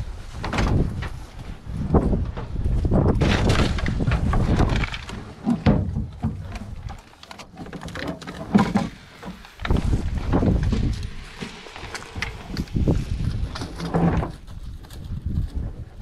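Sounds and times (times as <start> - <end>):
microphone handling rumble: 0.0 - 7.0, 8.2 - 16.0.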